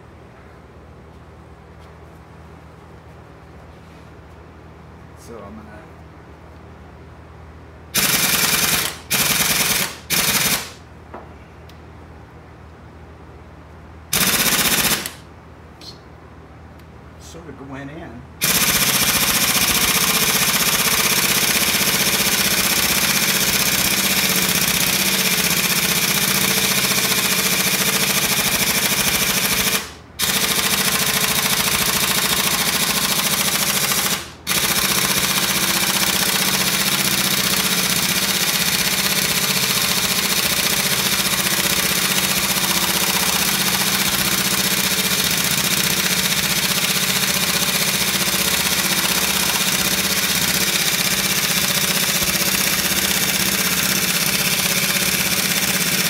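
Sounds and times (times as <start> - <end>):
air impact wrench hammering: 7.9 - 10.8, 14.1 - 15.2, 18.4 - 56.0.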